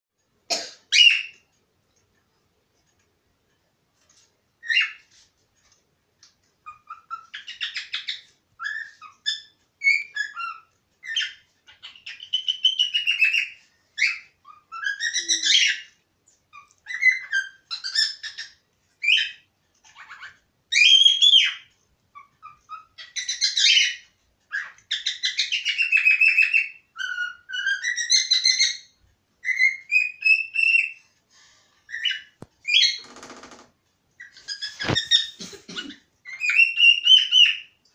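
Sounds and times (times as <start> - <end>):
cockatiel whistling: 24.6 - 31.0.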